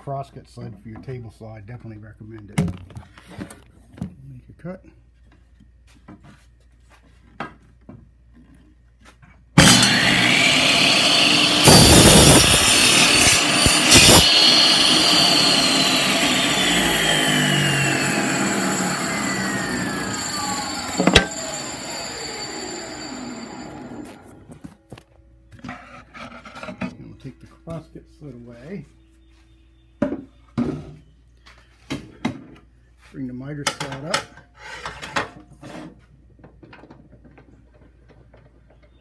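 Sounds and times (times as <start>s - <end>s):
table saw cutting wood: 9.6s - 24.5s
saw winding down whine: 9.6s - 24.6s.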